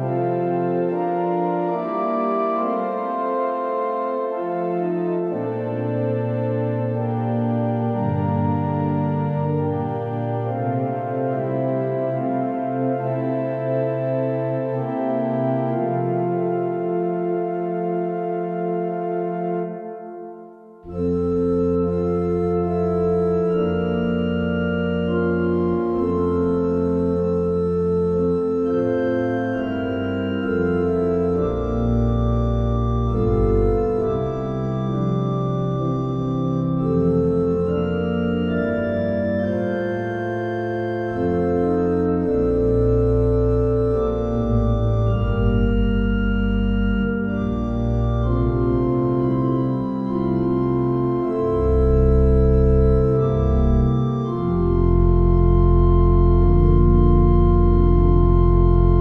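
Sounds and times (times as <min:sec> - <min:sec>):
organ playing slow chords: 0:00.0 - 0:59.0.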